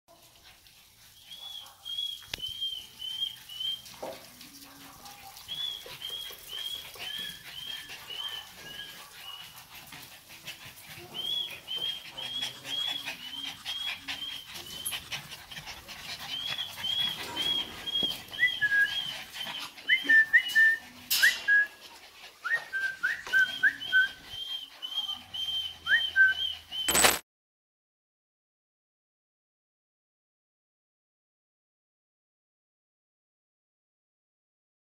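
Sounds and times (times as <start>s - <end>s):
small dogs yipping and whining: 0.9s - 27.2s
dog yelping: 16.3s - 21.7s.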